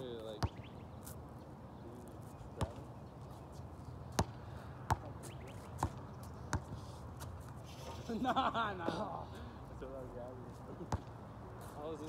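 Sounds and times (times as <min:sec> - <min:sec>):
basketball bouncing on hard court: 0:04.1 - 0:05.2, 0:10.9 - 0:11.1.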